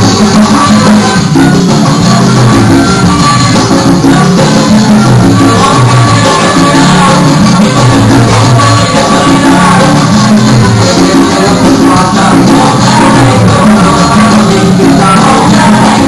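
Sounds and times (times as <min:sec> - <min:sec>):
salsa music with singing: 0:00.0 - 0:16.0.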